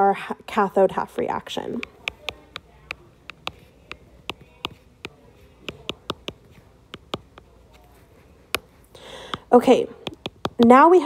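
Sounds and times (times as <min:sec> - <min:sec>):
stylus tapping on glass screen: 0:01.8 - 0:07.5, 0:08.5 - 0:10.7.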